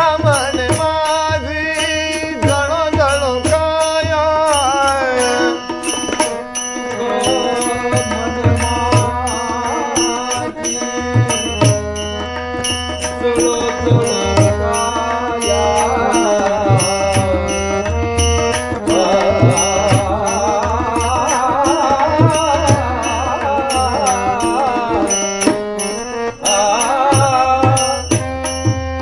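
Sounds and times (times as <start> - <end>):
hand cymbals striking a beat: 0.0 - 29.0
harmonium: 0.0 - 29.0
tabla: 0.0 - 29.0
person singing: 6.9 - 12.2, 12.8 - 28.6.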